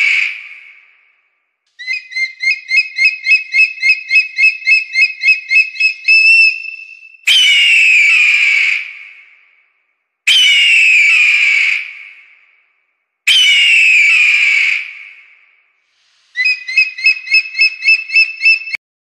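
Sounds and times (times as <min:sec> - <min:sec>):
bird of prey harsh scream: 0:00.0 - 0:01.0, 0:01.8 - 0:09.4, 0:10.3 - 0:12.4, 0:13.3 - 0:15.4, 0:16.1 - 0:18.8
bird of prey piping notes: 0:01.8 - 0:08.6, 0:13.3 - 0:14.5, 0:16.1 - 0:18.8.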